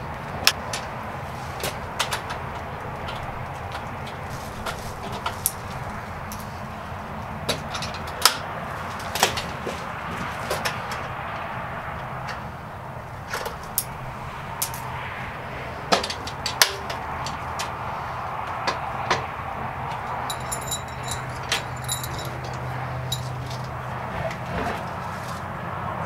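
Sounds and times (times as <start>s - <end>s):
metal parts clinking and knocking: 20.2s - 23.7s.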